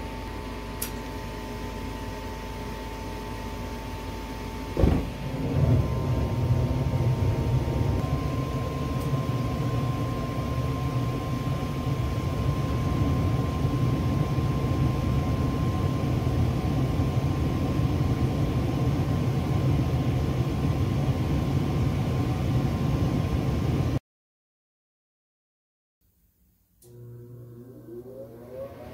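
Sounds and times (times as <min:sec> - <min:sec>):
high whine: 0:00.0 - 0:20.4
furnace rumbling: 0:02.8 - 0:14.4.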